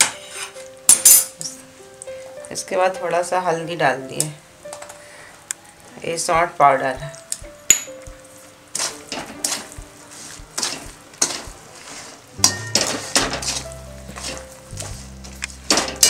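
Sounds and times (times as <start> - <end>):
spoon scraping a metal pan: 8.7 - 14.5.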